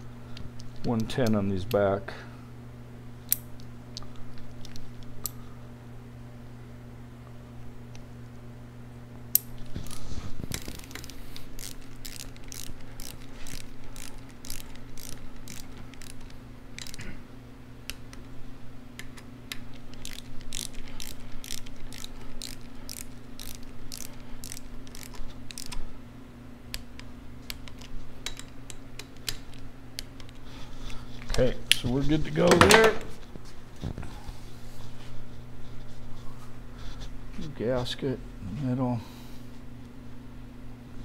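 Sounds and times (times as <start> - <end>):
ratchet wrench clicking: 10.5 - 17.0, 19.7 - 25.8.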